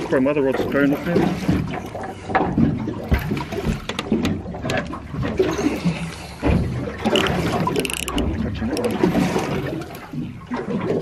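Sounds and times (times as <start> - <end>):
water slapping against boat hull: 0.0 - 11.0
fishing reel clicking: 7.1 - 9.0
spinning reel rasp: 7.2 - 8.2.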